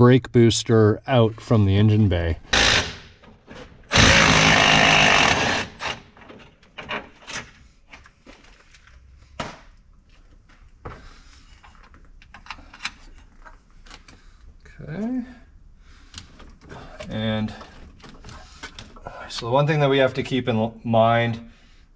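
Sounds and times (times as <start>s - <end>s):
impact driver rattling: 2.5s - 7.5s
parts clicking and knocking: 2.5s - 9.7s, 11.6s - 14.2s, 16.1s - 19.1s.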